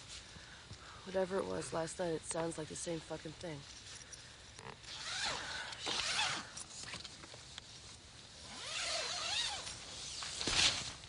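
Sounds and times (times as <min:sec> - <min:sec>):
tent fabric rustling: 0:04.6 - 0:11.0.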